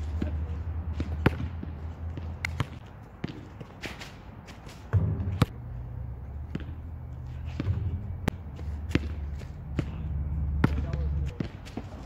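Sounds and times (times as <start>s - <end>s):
basketball bouncing on asphalt: 0.0s - 12.0s.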